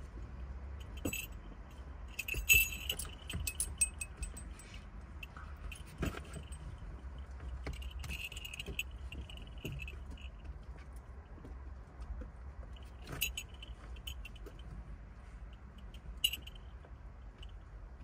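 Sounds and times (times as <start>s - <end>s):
dog collar tags jingling: 0.8s - 10.4s, 12.8s - 14.6s, 15.8s - 16.7s.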